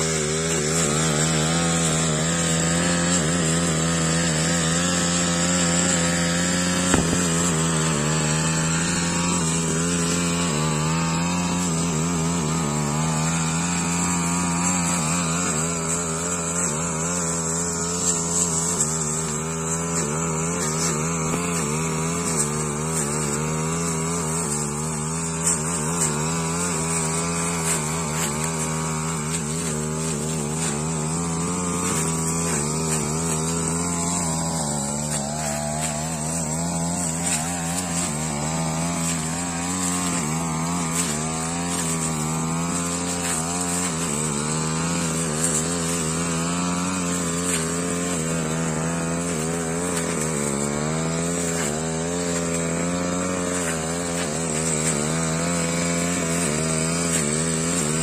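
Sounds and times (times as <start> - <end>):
blade cutting grass: 0.0 - 58.0
brush cutter engine high revs: 0.0 - 58.0.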